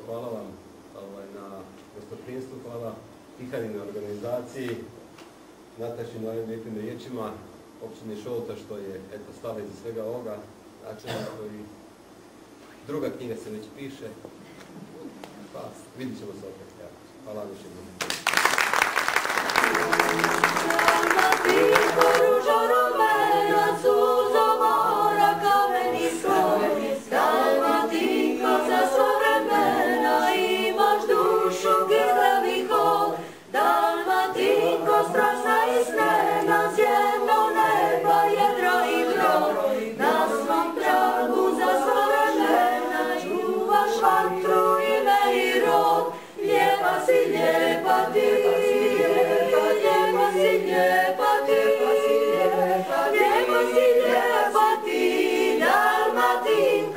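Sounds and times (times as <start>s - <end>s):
a cappella choir singing: 19.3s - 56.9s.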